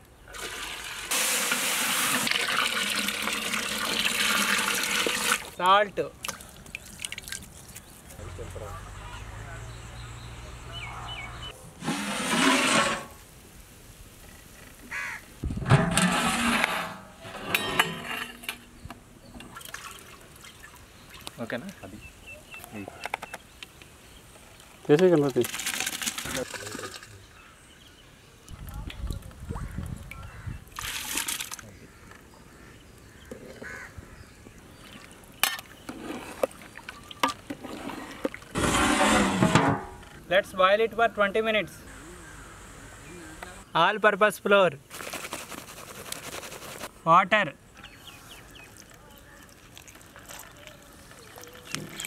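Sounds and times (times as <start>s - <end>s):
pot lids scraping and clanking: 11.8s - 13.2s, 15.6s - 19.5s, 35.4s - 40.2s.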